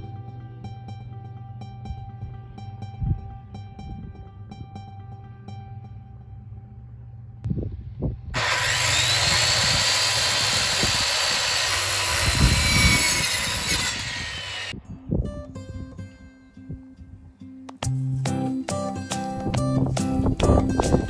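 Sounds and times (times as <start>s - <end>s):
circular saw cutting wood: 8.4s - 14.8s.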